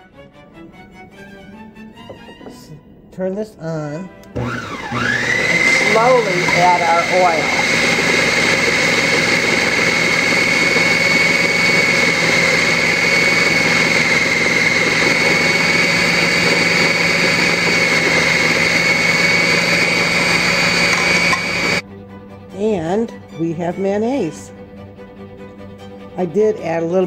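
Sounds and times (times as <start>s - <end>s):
food processor motor whining: 4.3s - 21.8s.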